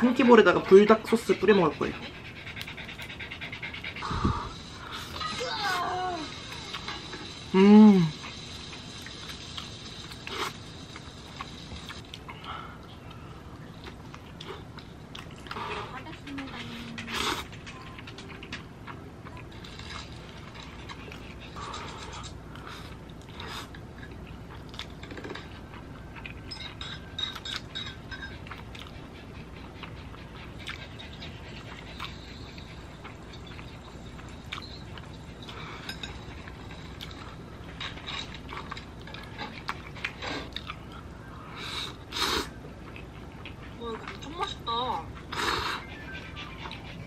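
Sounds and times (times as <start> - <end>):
person chewing: 9.0 - 15.7, 19.7 - 30.9, 34.2 - 44.2.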